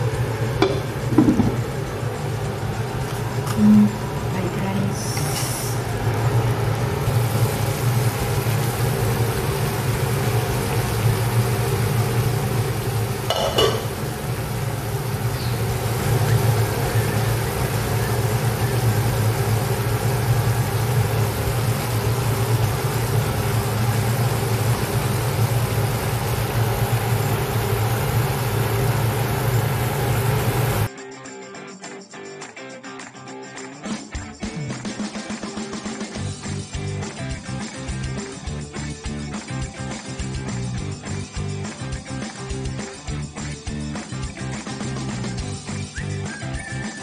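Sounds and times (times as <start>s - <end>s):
exhaust fan humming: 0.0s - 30.9s.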